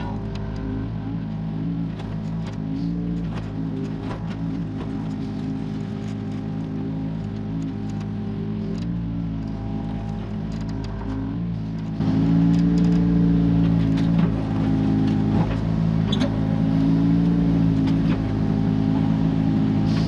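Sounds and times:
excavator diesel engine running: 0:00.0 - 0:20.0.

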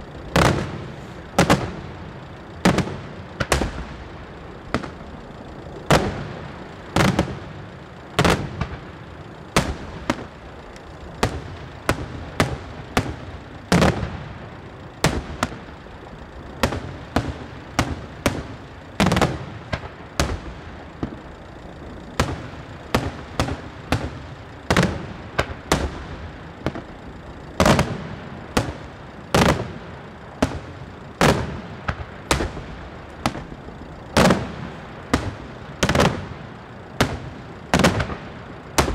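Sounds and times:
fireworks cracks: 0:00.0 - 0:38.9
fireworks bangs: 0:00.3 - 0:01.8, 0:02.6 - 0:03.9, 0:05.9 - 0:07.6, 0:11.2 - 0:14.4, 0:34.2 - 0:38.9.

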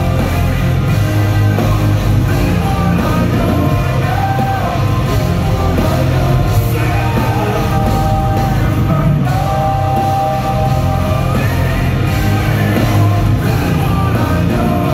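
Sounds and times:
live metal band: 0:00.0 - 0:14.9
singer holding long notes: 0:00.0 - 0:14.9.

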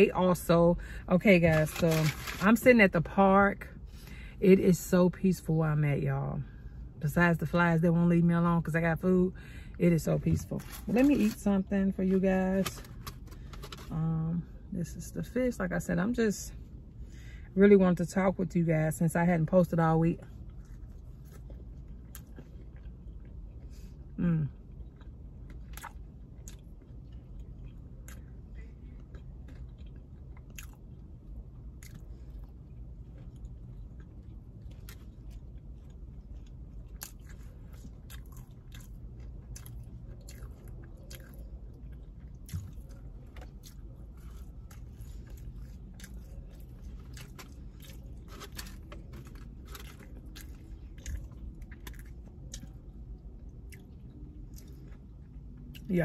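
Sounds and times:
low hum: 0:00.0 - 0:56.0
chewing crispy fried fish: 0:20.2 - 0:55.9.

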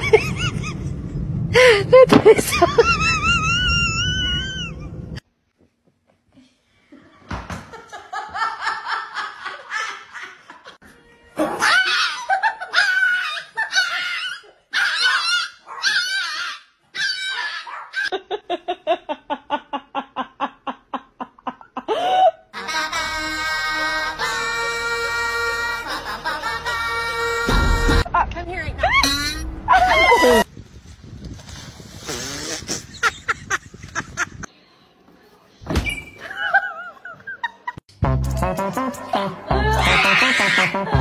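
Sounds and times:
people laughing: 0:01.6 - 0:03.8, 0:07.0 - 0:10.8, 0:11.4 - 0:14.4, 0:23.8 - 0:27.4, 0:36.2 - 0:37.8, 0:39.0 - 0:41.0
music with sustained notes: 0:22.6 - 0:28.1.

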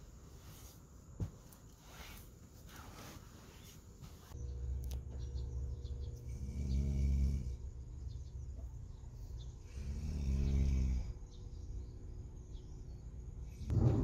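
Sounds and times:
steady low hum: 0:00.0 - 0:14.0
person snoring: 0:09.7 - 0:11.2.

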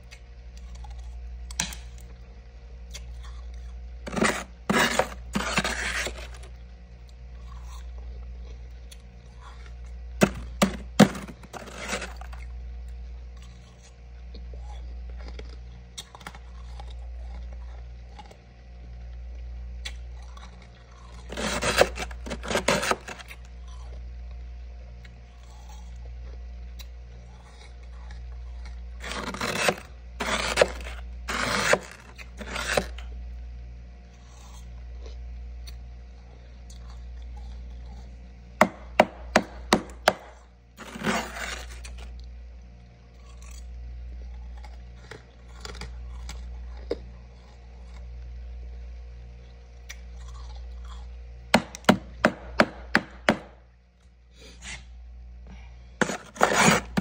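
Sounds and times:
steady low hum: 0:00.0 - 0:57.0
spoon scraping frost: 0:04.0 - 0:06.6, 0:10.2 - 0:12.5, 0:21.1 - 0:23.5, 0:29.0 - 0:33.1, 0:40.8 - 0:42.1, 0:56.0 - 0:57.0.

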